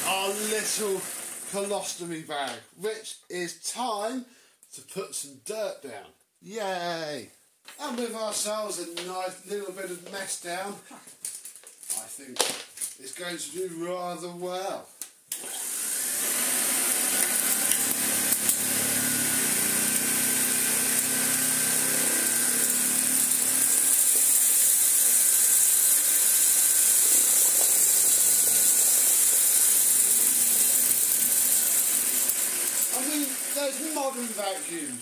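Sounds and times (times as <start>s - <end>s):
vacuum cleaner running: 0.0s - 1.7s, 15.3s - 35.0s.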